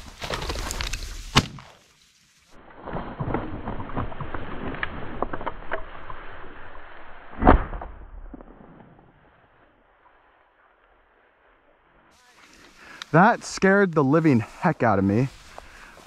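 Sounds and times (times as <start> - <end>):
footsteps through dry grass: 0.0 - 3.2, 10.2 - 16.0
shotgun shot: 7.4 - 8.8.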